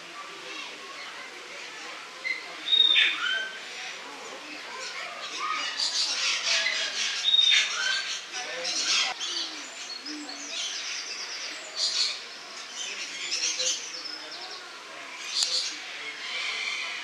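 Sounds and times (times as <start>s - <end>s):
parrots chattering and screeching: 15.2s - 17.0s.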